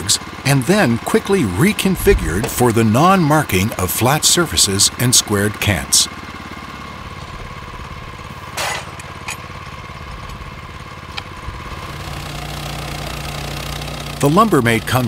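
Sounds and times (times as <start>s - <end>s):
small petrol engine running: 0.0s - 15.0s.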